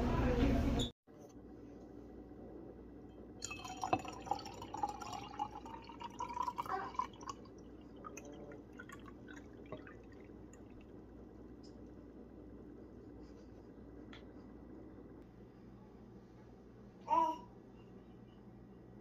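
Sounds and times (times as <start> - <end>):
juice pouring into a glass jar: 3.4 - 11.7.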